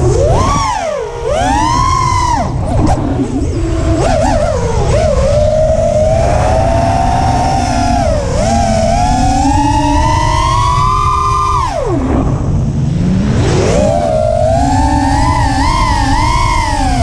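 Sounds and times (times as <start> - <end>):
quadcopter motors whining: 0.0 - 17.0
rush of air: 5.2 - 17.0.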